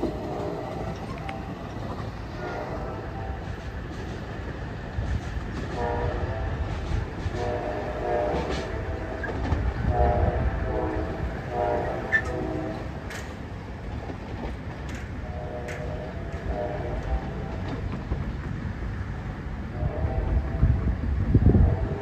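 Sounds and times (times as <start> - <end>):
train horn blasts: 0.0 - 3.8, 5.6 - 13.3, 15.2 - 17.9, 19.7 - 22.0
train rumbling: 0.0 - 22.0.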